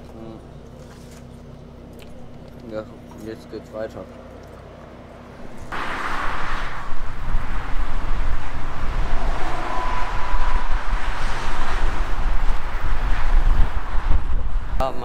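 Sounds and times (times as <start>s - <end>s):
motorway traffic rushing: 4.6s - 15.0s
wind buffeting microphone: 5.5s - 15.0s.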